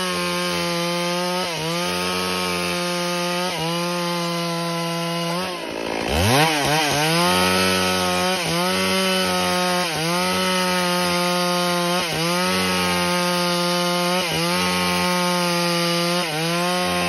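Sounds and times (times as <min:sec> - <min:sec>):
chainsaw cutting log: 0:00.0 - 0:17.0.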